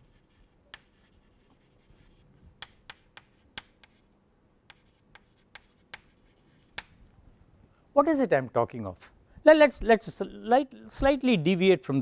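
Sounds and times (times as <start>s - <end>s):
chalk writing on chalkboard: 0.0s - 7.0s.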